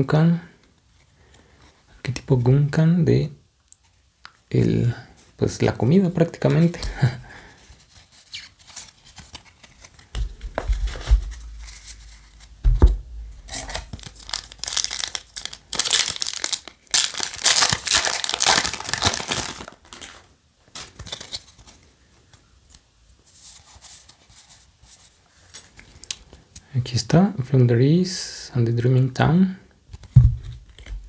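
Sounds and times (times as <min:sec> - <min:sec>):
dull knocks: 0:12.6 - 0:13.6
foil wrapper ripping and crinkling: 0:13.4 - 0:21.6.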